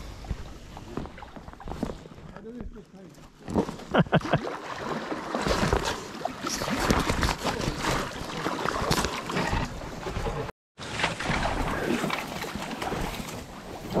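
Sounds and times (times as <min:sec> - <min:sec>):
reeds scraping along a kayak: 0:04.8 - 0:14.0.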